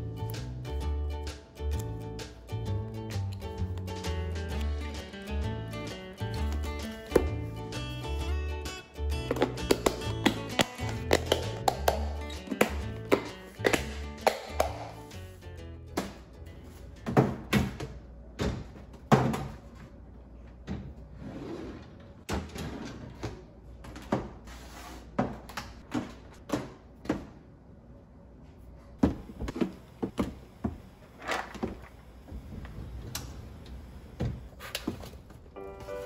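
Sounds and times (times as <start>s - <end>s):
shelf sliding: 20.6s - 23.5s.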